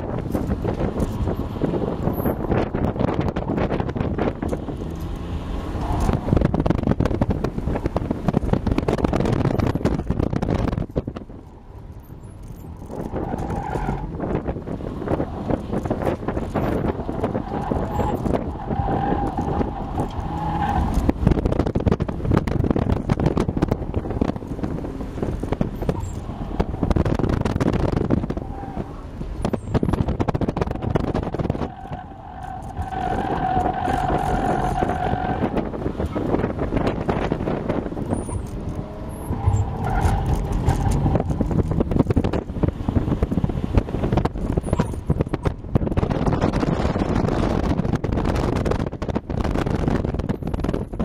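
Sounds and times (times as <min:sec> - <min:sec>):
road rumble: 0:00.0 - 0:51.0
wind buffeting microphone: 0:00.0 - 0:51.0
car engine revving under load: 0:12.4 - 0:51.0.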